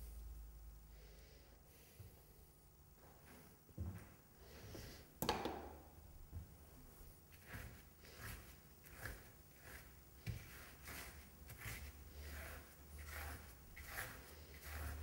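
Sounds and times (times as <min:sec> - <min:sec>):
low steady hum: 0:00.0 - 0:15.0
paintbrush swishing on canvas: 0:07.3 - 0:15.0.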